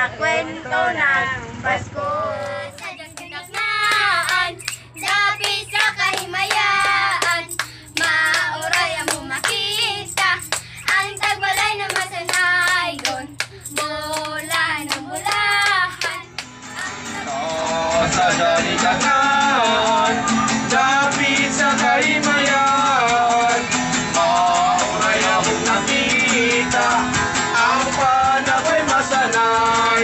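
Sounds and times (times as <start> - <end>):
children singing a carol: 0.0 - 19.5
hands clapping rhythmically: 2.4 - 17.0.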